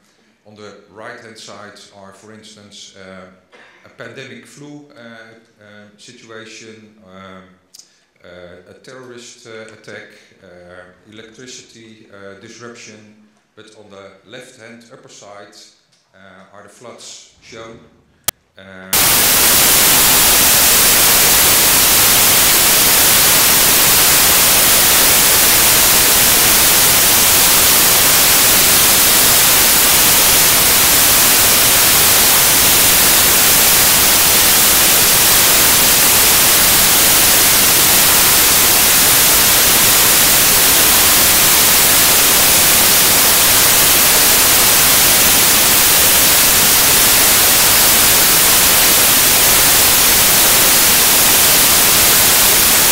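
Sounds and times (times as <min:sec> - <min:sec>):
loud static hiss: 0:18.9 - 0:52.9.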